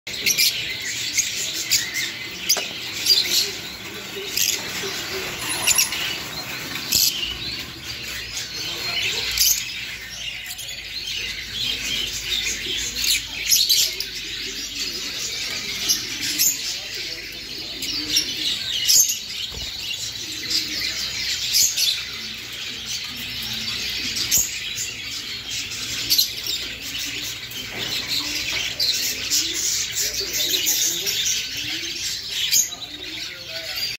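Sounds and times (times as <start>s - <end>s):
lovebirds chirping: 0.1s - 33.9s.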